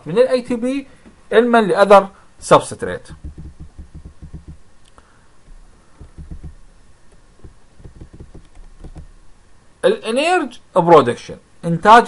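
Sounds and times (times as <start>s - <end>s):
mouse scroll wheel ticking: 3.2s - 4.6s, 6.0s - 9.1s.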